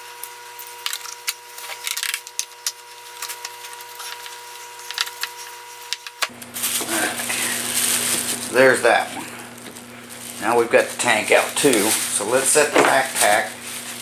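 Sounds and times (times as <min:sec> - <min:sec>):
faint steady hum: 0:00.0 - 0:14.0
plastic bag crinkling: 0:00.8 - 0:05.3, 0:06.3 - 0:14.0.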